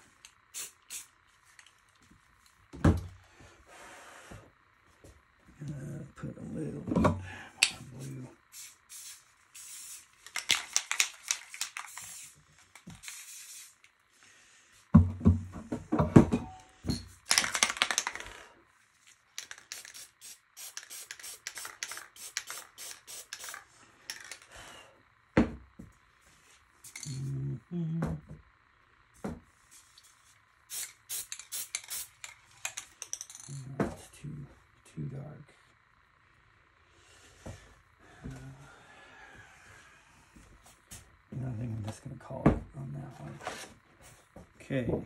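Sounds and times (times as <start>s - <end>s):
spray paint can hissing: 0.5s - 1.2s, 8.5s - 13.9s, 19.4s - 24.4s, 30.7s - 32.4s.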